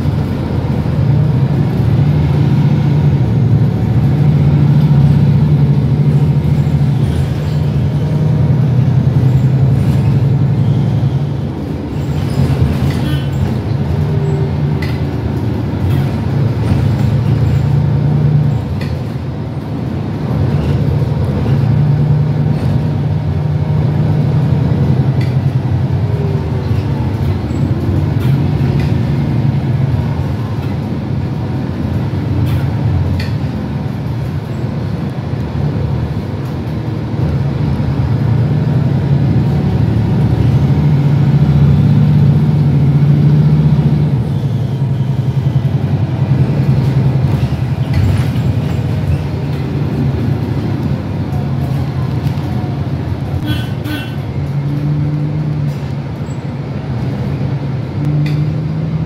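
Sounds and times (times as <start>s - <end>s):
bus diesel engine droning: 0.0s - 59.0s
interior rattles and clicks: 11.2s - 41.2s, 45.1s - 53.4s.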